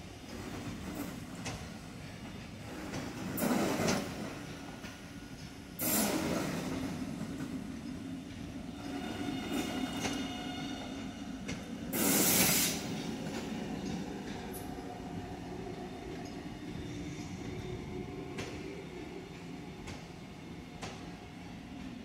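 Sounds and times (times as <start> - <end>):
train motors and wheels droning: 0.0 - 22.0
short loud air hiss: 5.8 - 6.5, 12.0 - 12.9.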